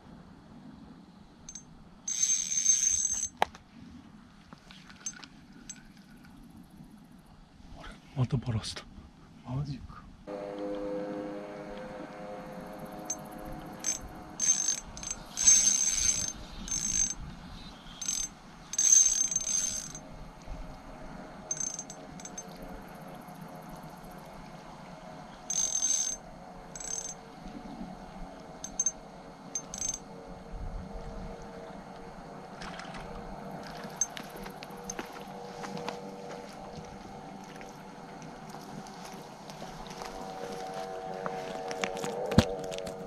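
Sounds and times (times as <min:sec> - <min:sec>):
faint steady hum: 0:00.0 - 0:43.0
fishing reel whirring: 0:01.5 - 0:03.3, 0:12.8 - 0:20.0, 0:21.5 - 0:24.1, 0:25.5 - 0:27.2, 0:28.6 - 0:30.0.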